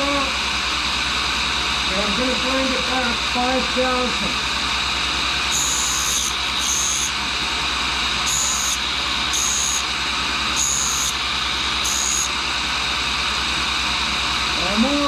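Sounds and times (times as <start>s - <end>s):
grinder running: 4.4s - 15.0s
grinding wheel hissing: 5.5s - 13.9s.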